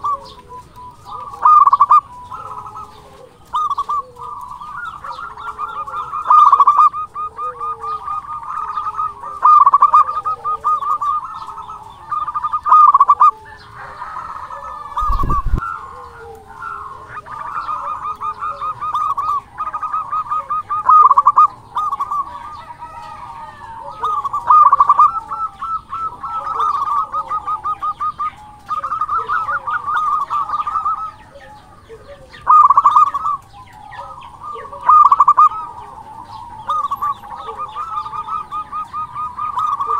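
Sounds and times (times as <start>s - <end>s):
dove cooing: 0.0s - 39.9s.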